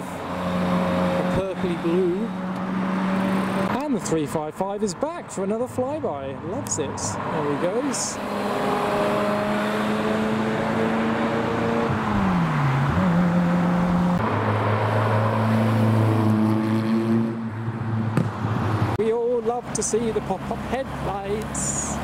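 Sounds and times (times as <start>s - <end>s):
sports car engine passing: 0.0s - 4.3s, 6.7s - 19.0s.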